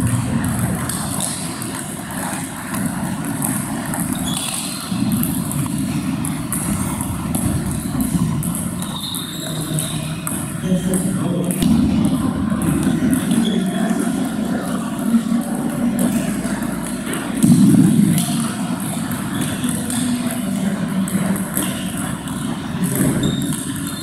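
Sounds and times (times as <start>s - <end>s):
table tennis balls clicking: 0.0s - 24.0s
steady low hum: 4.9s - 9.0s, 10.0s - 23.1s.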